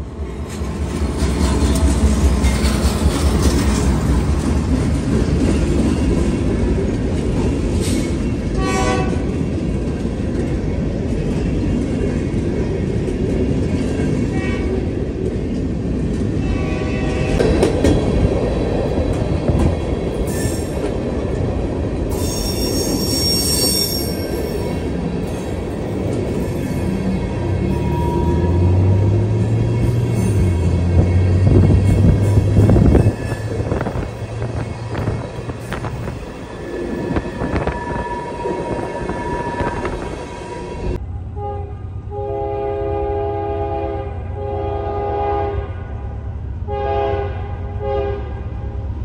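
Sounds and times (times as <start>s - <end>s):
train wheels clattering on rail: 0.0s - 40.3s
diesel locomotive passing: 0.0s - 49.0s
high wheel squeal: 22.1s - 24.9s, 26.4s - 41.0s.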